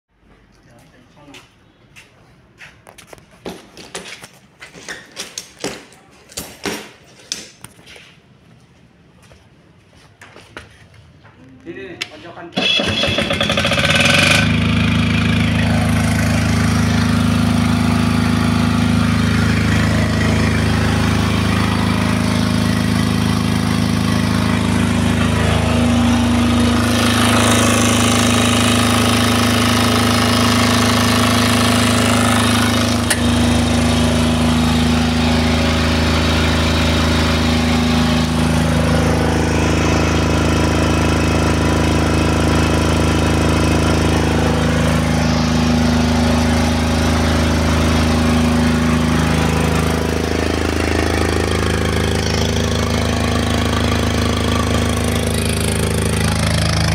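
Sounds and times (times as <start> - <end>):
diesel generator engine running: 12.5 - 56.9.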